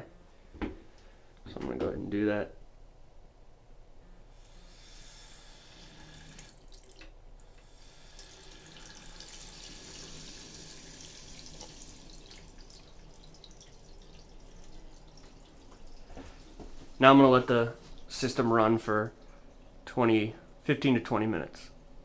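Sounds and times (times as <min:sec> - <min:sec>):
water hiss from faucet: 0:04.4 - 0:16.4.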